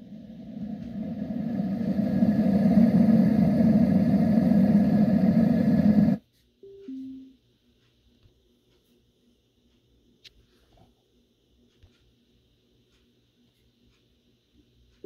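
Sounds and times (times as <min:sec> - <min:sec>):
short beep: 0:06.6 - 0:07.4.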